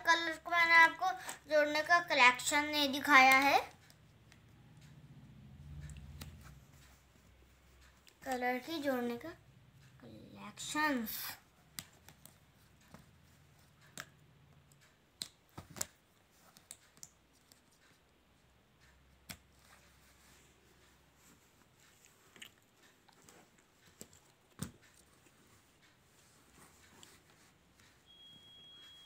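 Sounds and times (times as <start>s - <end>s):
plastic pens clicking together: 11.7s - 18.0s.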